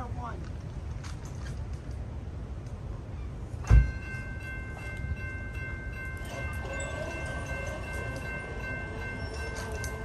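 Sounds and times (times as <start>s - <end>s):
railroad crossing bell ringing: 3.6s - 10.0s.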